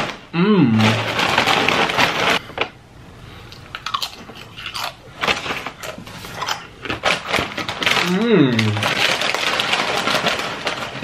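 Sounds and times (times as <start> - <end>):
chips crunching: 3.5 - 11.0.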